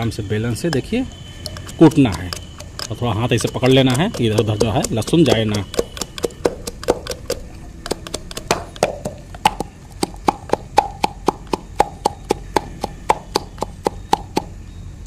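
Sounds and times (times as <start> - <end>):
rolling pin pounding in glass: 3.3 - 14.4.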